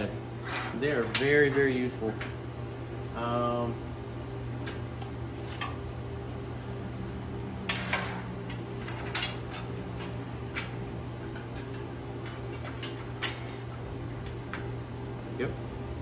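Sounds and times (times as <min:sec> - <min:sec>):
low electrical hum: 0:00.0 - 0:16.0
metal parts clinking on steel table: 0:00.6 - 0:01.7.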